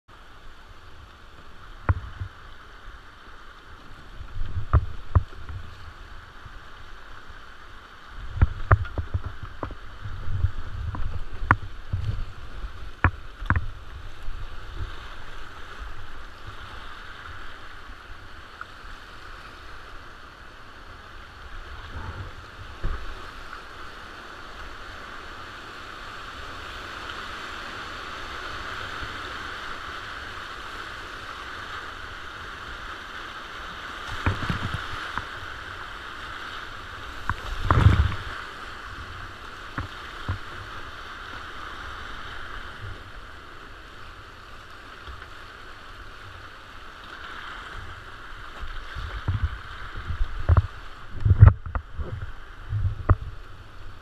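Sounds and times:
whitewater river rushing: 0.1s - 54.0s
paddle and hull knocking water: 1.0s - 3.0s, 3.8s - 17.8s, 21.6s - 23.7s, 34.0s - 43.3s, 44.5s - 54.0s.

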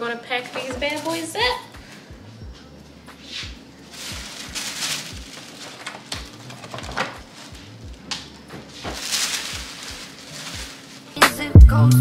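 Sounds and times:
tissue paper rustling and crinkling: 0.4s - 1.6s, 3.8s - 11.2s.

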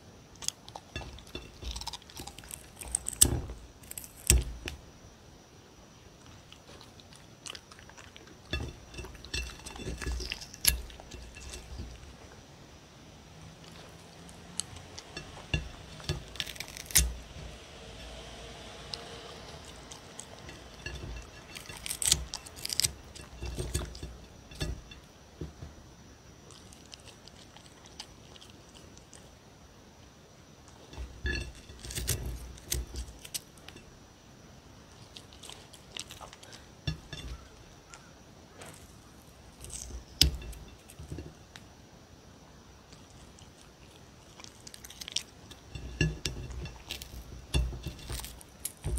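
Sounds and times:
fingers clinking on plate: 0.4s - 4.8s, 7.4s - 12.1s, 13.6s - 18.2s, 18.9s - 25.6s, 30.7s - 33.8s, 35.0s - 39.0s, 39.6s - 41.4s, 44.3s - 48.9s.

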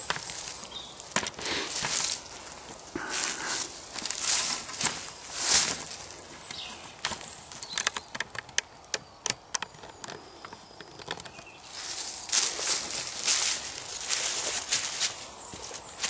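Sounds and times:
footsteps in dry leaves: 0.0s - 7.8s, 11.6s - 16.0s
twigs cracking: 0.0s - 16.0s.

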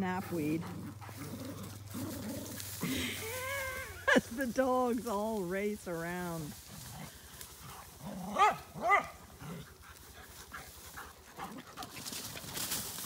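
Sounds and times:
dog yelping: 8.3s - 9.2s.

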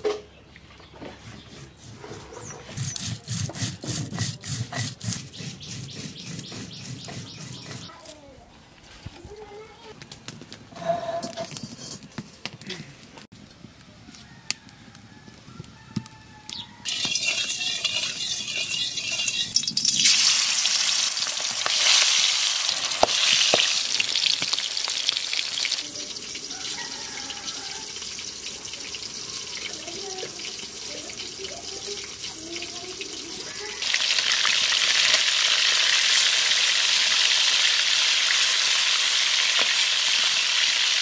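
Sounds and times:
food sizzling in hot oil: 16.5s - 41.0s.

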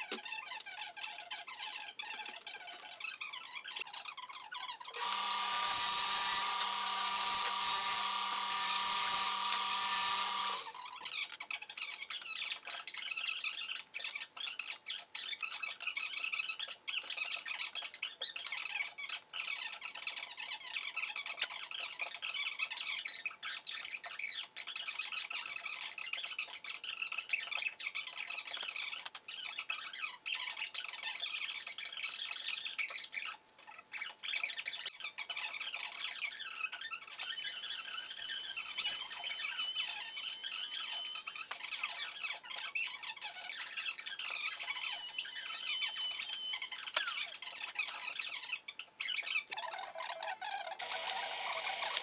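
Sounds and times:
power tool whining: 5.0s - 10.8s, 37.2s - 41.4s, 44.6s - 46.8s, 50.8s - 52.0s.

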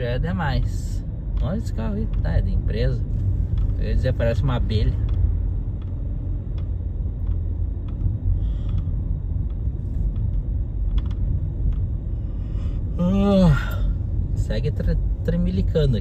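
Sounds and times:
car engine and tyres rumbling: 0.0s - 16.0s
faint clicks: 4.9s - 12.0s.

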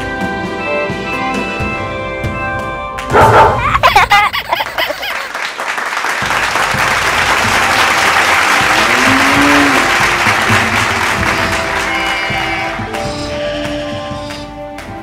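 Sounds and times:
crowd clapping: 4.3s - 14.9s
crowd whooping and shouting: 8.2s - 10.6s.

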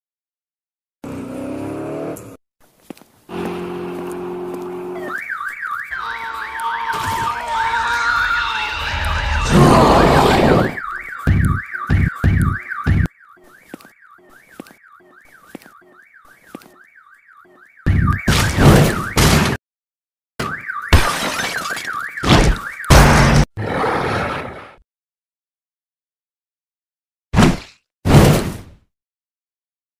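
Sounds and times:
car alarm wailing: 4.9s - 19.5s, 20.4s - 23.1s.

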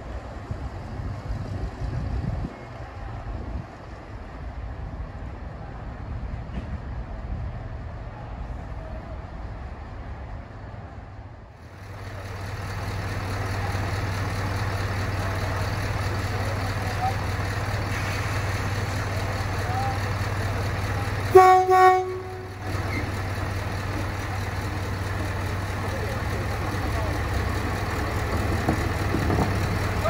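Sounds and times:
diesel locomotive idling: 11.6s - 30.0s
locomotive horn toots: 21.3s - 22.7s.

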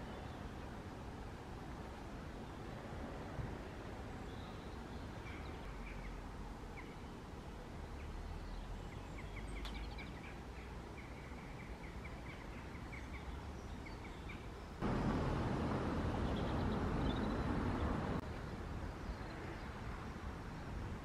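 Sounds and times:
low background rumble: 14.8s - 18.2s.

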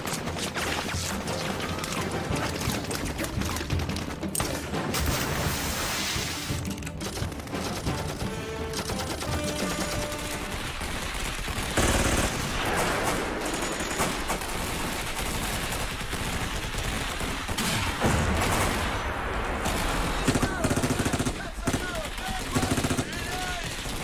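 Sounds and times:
film music score: 0.0s - 15.2s
machine-gun fire: 7.0s - 24.0s
rapid gunfire: 7.0s - 24.0s.

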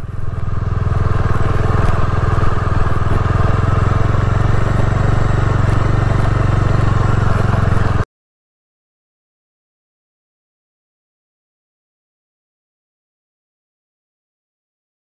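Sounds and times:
motorcycle engine running: 0.0s - 8.1s.

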